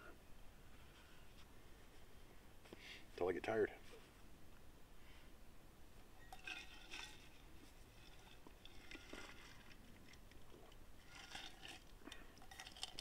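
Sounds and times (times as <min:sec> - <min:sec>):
camp cookware clinking: 0:06.1 - 0:09.7, 0:11.1 - 0:13.0.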